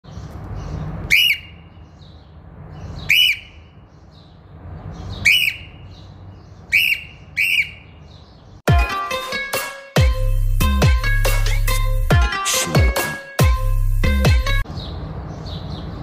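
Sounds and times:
cockatiel shrill calls: 1.1 - 1.5, 3.0 - 3.5, 5.2 - 5.7, 6.7 - 7.8.

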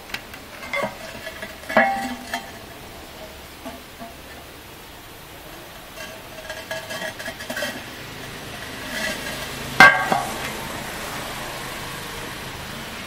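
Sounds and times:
ceramic lid clinking and scraping: 0.6 - 4.4, 5.9 - 10.6.

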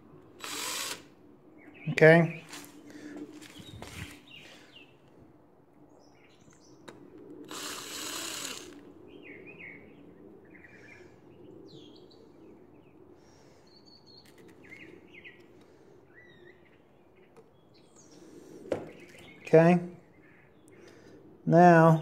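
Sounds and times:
cordless drill spinning: 0.4 - 1.1, 7.4 - 8.9
small birds chirping: 1.6 - 5.2, 5.8 - 21.2.

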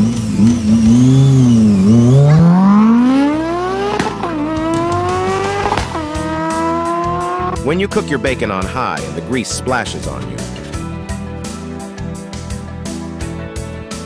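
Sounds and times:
engine accelerating hard: 0.0 - 8.0.

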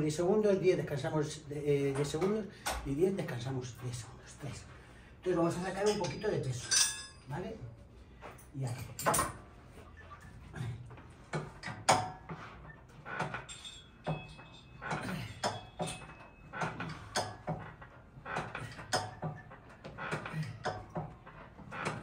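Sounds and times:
exercise machine clunking: 8.8 - 22.0.

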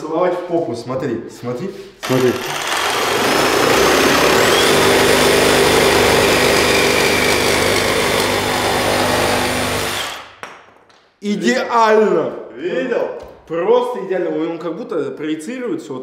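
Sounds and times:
reciprocating saw cutting wood: 2.0 - 10.3.

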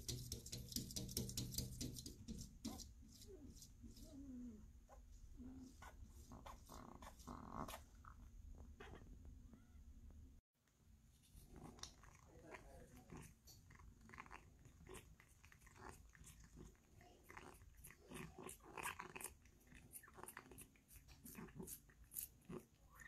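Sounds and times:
cat licking and smacking: 11.4 - 23.0.

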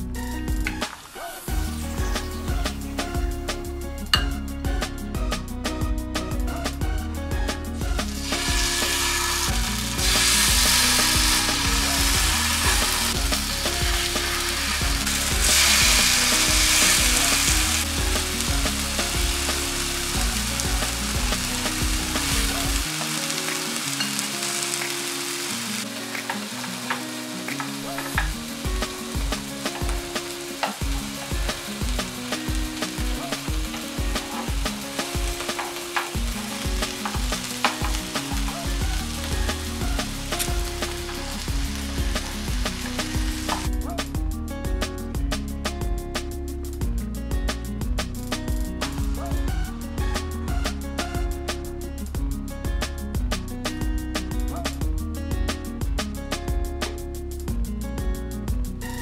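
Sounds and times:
background music: 0.0 - 59.0
chicken sizzling on a grill pan: 8.0 - 43.7.

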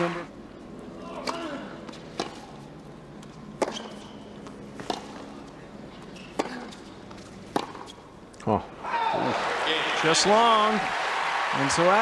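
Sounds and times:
tennis ball struck by rackets: 1.2 - 2.5, 3.6 - 5.3, 6.3 - 6.7, 7.5 - 8.0.

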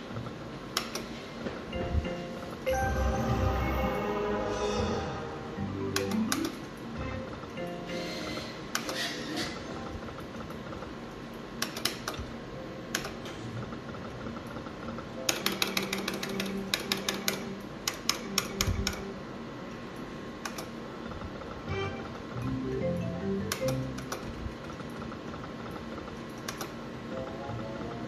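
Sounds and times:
machine hum and held tones: 1.4 - 11.6, 12.2 - 28.0
slot machine button clicks: 5.7 - 6.8, 21.7 - 24.3.

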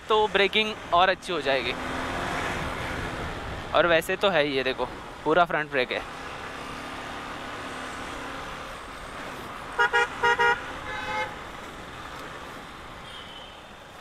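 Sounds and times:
motorcycle riding in traffic: 0.0 - 14.0
vehicle horn toots: 9.8 - 11.4, 13.0 - 13.7.

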